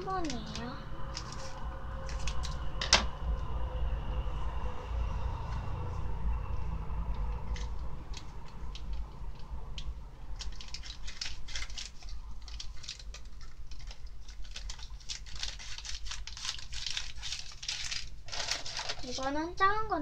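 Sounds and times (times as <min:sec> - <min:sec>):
powder packet crinkling: 0:00.0 - 0:02.7, 0:07.4 - 0:19.4
low steady hum: 0:00.0 - 0:20.0.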